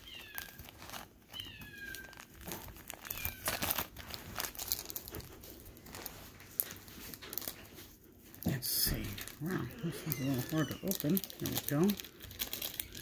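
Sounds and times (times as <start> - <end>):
plastic bag crinkling: 0.0 - 13.0
kitten mewing: 8.9 - 12.0.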